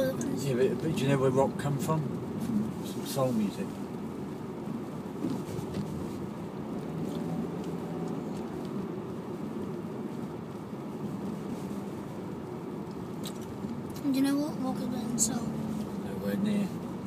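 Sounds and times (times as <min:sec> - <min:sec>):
car engine hum: 0:00.0 - 0:17.0
road noise: 0:00.0 - 0:17.0.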